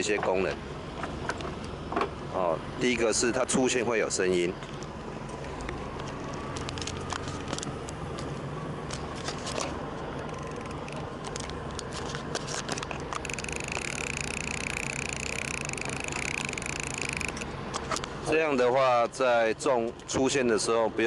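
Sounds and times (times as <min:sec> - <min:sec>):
fishing reel clicker buzzing: 0:13.1 - 0:17.5.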